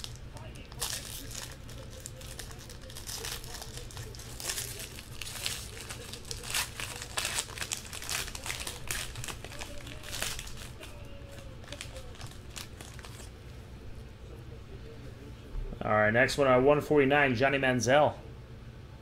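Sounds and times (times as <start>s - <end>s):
foil wrapper tearing and crinkling: 0.0s - 13.3s.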